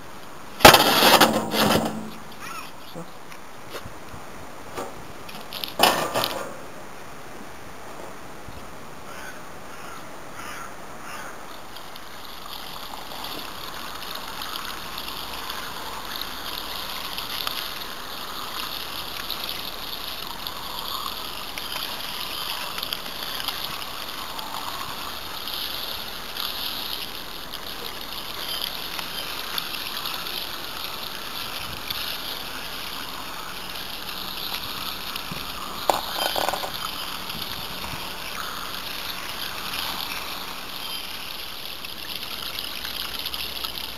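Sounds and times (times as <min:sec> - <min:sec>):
metal scoop scraping substrate: 0:00.6 - 0:02.5, 0:35.8 - 0:37.1.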